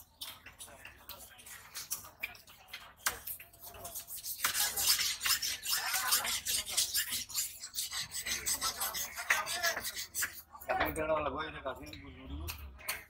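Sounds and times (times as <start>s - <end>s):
knife scraping fish scales: 3.0s - 10.7s.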